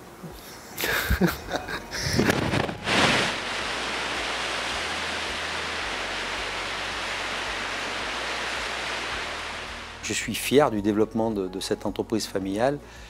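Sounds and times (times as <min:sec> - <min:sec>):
steady rushing noise: 0:01.1 - 0:10.5.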